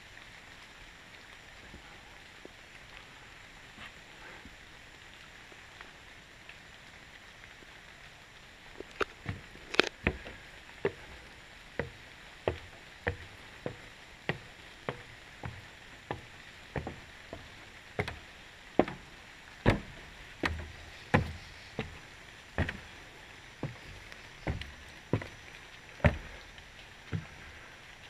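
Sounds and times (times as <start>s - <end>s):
footsteps on wooden boards: 8.8s - 27.6s.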